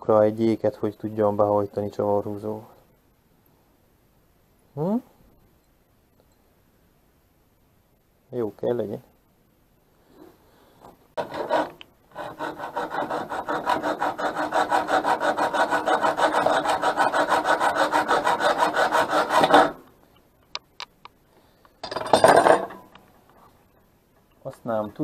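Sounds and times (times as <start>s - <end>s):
scraping: 10.1s - 19.9s
hacksaw cutting metal: 11.2s - 19.8s.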